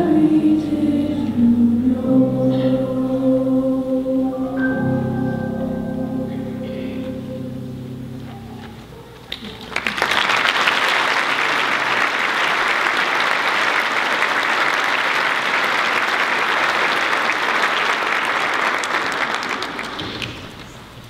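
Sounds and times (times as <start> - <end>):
audience applauding: 9.3 - 20.9.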